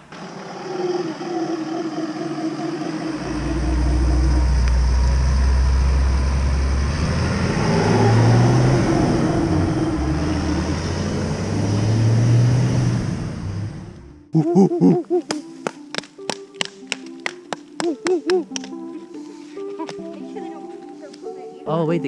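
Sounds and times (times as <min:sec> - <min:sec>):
howler monkeys roaring: 0:00.0 - 0:14.0
heavy low rumble: 0:03.1 - 0:14.3.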